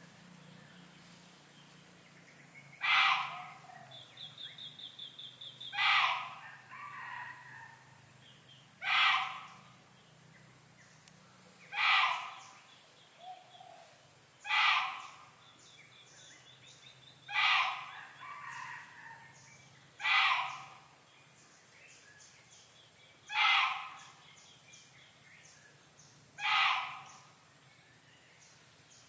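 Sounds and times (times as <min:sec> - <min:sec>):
bird harsh call: 0:02.8 - 0:04.0, 0:05.6 - 0:07.2, 0:08.8 - 0:09.7, 0:11.7 - 0:13.7, 0:14.4 - 0:15.3, 0:17.3 - 0:19.2, 0:20.0 - 0:20.9, 0:23.3 - 0:24.3, 0:26.4 - 0:27.3.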